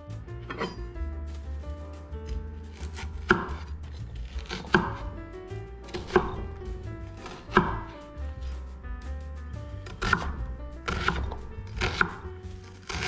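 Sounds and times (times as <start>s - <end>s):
knife chopping on cutting board: 2.2s - 5.2s, 5.8s - 8.6s, 9.8s - 13.0s.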